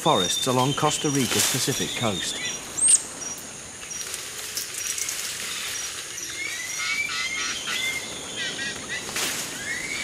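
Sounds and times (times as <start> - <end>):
insects hissing: 0.0 - 10.0
rising bird chirps: 0.1 - 4.1.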